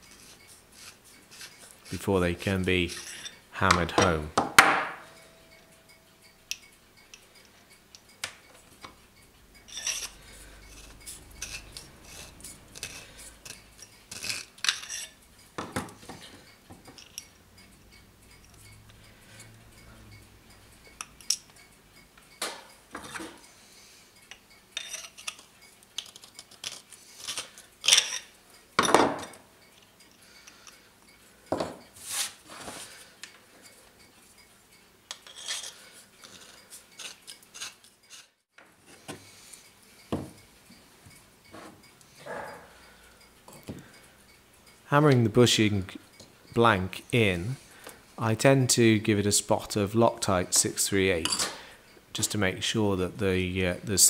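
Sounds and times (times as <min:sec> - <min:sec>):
metal parts clinking on workbench: 0:16.9 - 0:17.3, 0:24.8 - 0:29.4.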